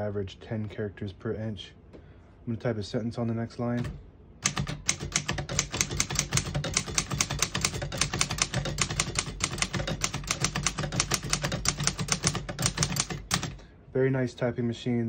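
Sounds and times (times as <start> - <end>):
typewriter typing: 3.8 - 13.6.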